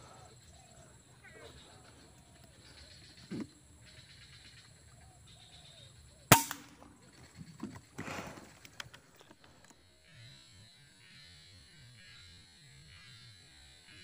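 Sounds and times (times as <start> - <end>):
rifle shot: 6.3 - 6.9.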